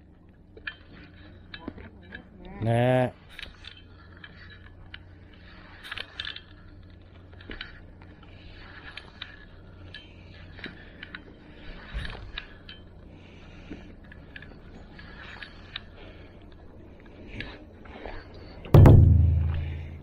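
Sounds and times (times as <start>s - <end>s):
dull knock: 18.8s - 20.0s.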